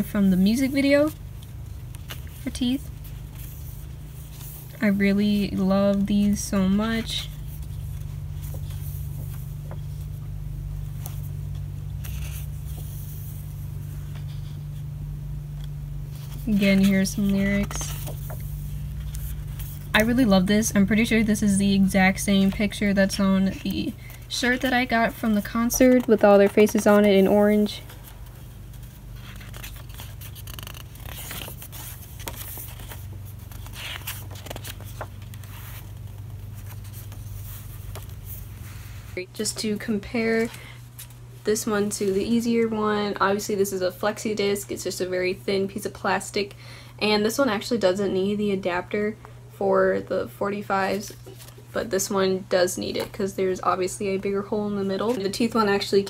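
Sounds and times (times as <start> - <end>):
paper pages rustling: 0.0 - 14.9, 15.6 - 21.2, 21.8 - 41.2, 50.9 - 52.1
low hum: 0.0 - 42.3.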